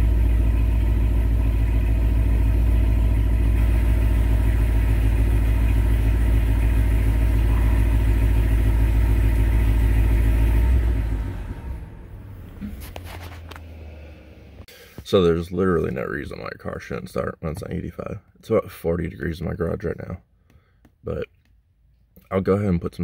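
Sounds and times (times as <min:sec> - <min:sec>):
car engine idling: 0:00.0 - 0:16.9.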